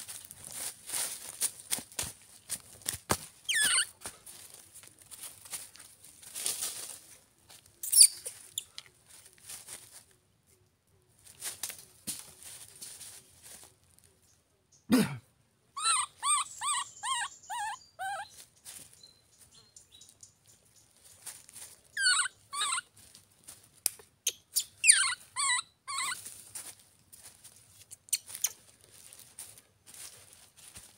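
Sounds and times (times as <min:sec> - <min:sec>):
baby monkey crying: 0:03.5 - 0:03.9, 0:15.8 - 0:18.3, 0:22.0 - 0:22.9, 0:24.6 - 0:26.2.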